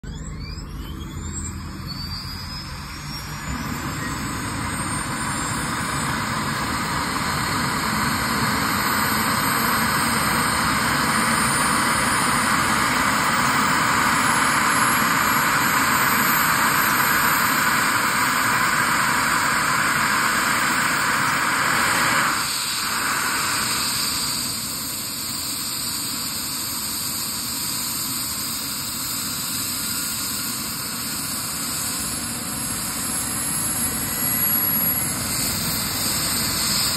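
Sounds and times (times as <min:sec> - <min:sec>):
helicopter turbine whine: 0:00.0 - 0:36.9.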